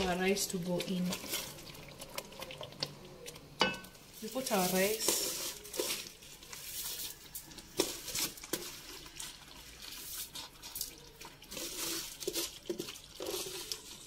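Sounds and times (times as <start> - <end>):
wet rice patters into sauce: 4.2 - 14.0.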